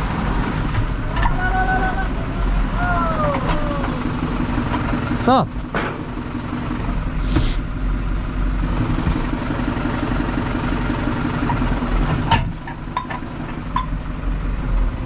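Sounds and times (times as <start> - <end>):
tractor diesel engine running: 0.0 - 15.0
clunk: 5.6 - 6.2, 11.4 - 14.0.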